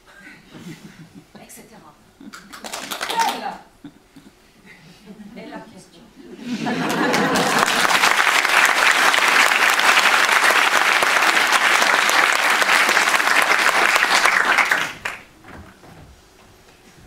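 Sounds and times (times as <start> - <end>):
audience applauding: 2.3 - 3.5, 6.8 - 15.3.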